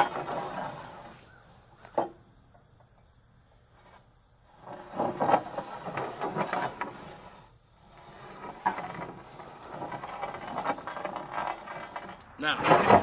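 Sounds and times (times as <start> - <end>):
metal square scraping wooden board: 0.0 - 2.2, 3.8 - 13.0.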